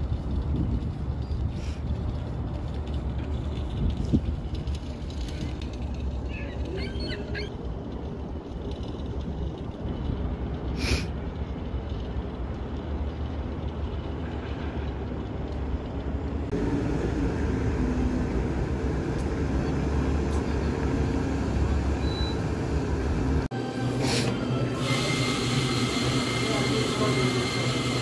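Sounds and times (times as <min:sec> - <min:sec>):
wind buffeting microphone: 0:00.0 - 0:05.7
outdoor city hum: 0:00.0 - 0:28.0.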